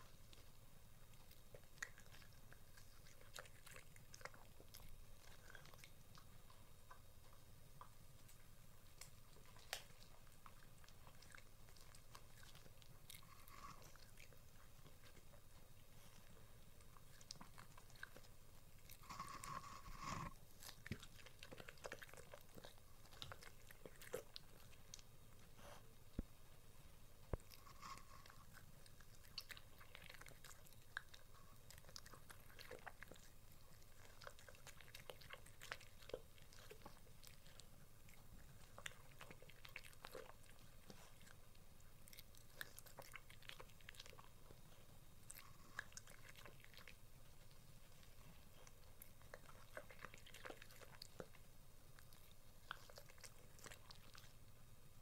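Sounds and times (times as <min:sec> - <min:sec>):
dog chewing food: 0:00.0 - 0:26.5, 0:27.2 - 0:55.0.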